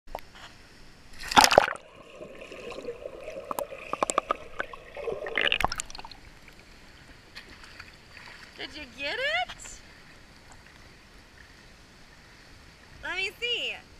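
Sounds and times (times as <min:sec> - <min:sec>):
child splashing into pool: 0:01.2 - 0:06.2
muffled underwater bubbling: 0:01.2 - 0:06.5
splashing water: 0:01.2 - 0:08.8
small underwater clicks: 0:02.4 - 0:06.6.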